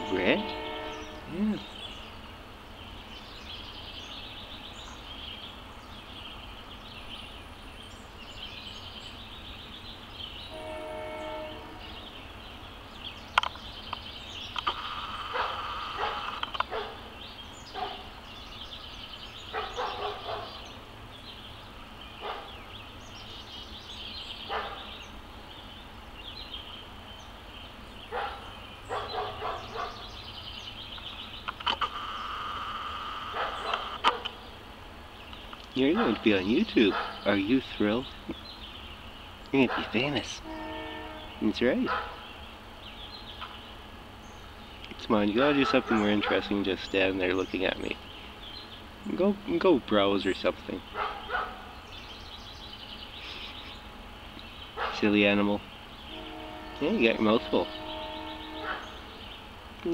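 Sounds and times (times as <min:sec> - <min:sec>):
pitched horn-like tone: 0:00.0 - 0:01.6, 0:10.5 - 0:12.0, 0:40.4 - 0:41.5, 0:56.1 - 0:58.9
distant sharp calls: 0:00.0 - 0:59.9.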